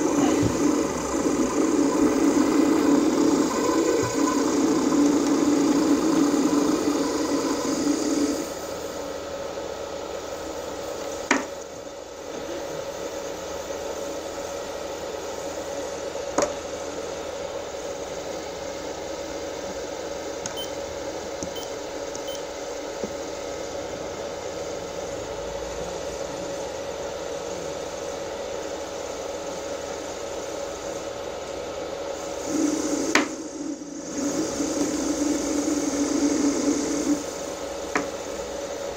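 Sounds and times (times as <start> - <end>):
electric motor whine: 0.0 - 8.6.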